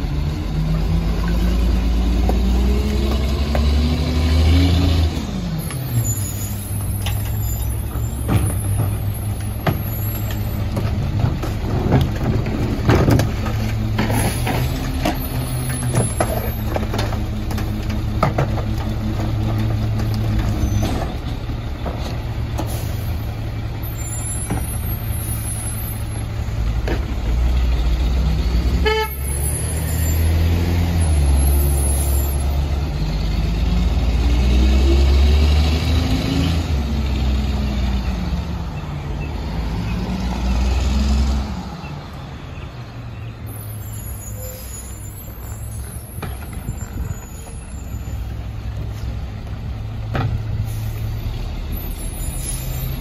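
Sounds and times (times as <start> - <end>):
diesel truck engine revving: 0.0 - 53.0
truck horn toot: 28.8 - 29.8.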